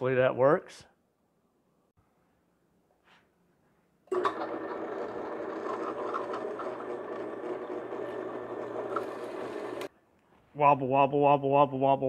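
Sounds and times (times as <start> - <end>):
drill press motor hum: 4.1 - 9.9
hole saw grinding metal: 4.1 - 9.9.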